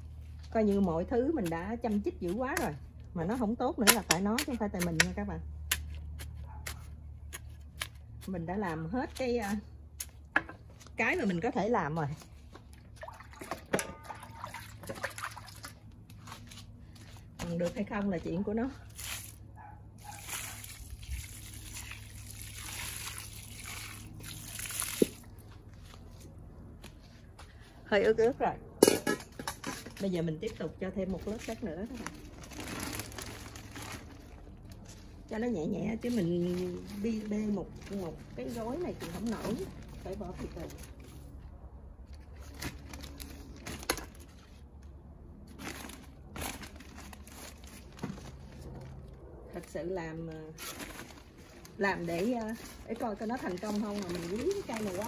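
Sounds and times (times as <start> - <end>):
water trickling onto soil: 18.8 - 26.1, 51.3 - 55.0
soil pouring: 20.1 - 25.4
plastic bag crinkling: 31.4 - 34.9, 45.5 - 48.5, 50.6 - 55.0.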